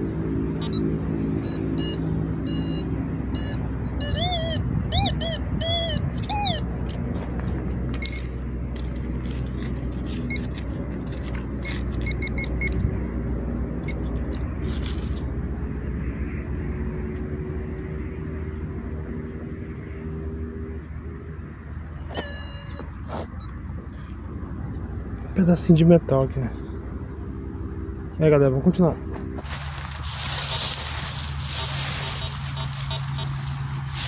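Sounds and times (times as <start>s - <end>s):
metal detector beeps: 0.6s - 6.6s, 8.0s - 8.4s, 10.0s - 10.6s, 11.2s - 12.8s, 13.8s - 14.2s, 22.1s - 23.6s, 30.2s - 34.0s
dry grass crackling: 6.2s - 12.6s, 13.9s - 15.3s, 29.3s - 34.0s
steady low rumble: 29.0s - 34.0s.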